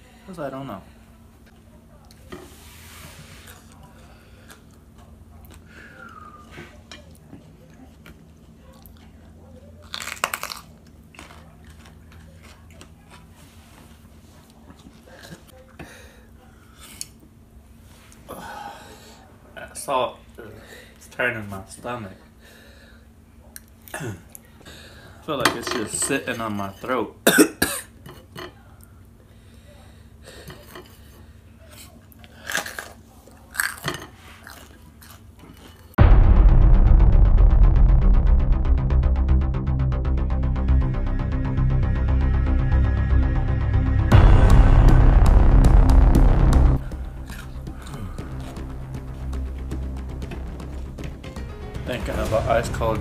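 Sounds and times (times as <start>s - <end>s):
chewing: 3.4s - 6.2s, 7.0s - 15.6s, 31.7s - 36.0s
crunchy bite into pepper: 9.8s - 12.6s
electronic music with pulsing beat: 36.0s - 53.0s.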